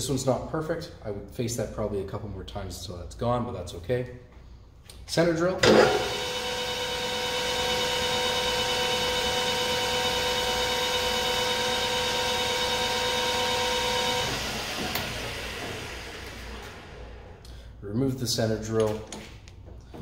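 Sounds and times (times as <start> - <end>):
metal lathe whining: 5.7 - 17.2.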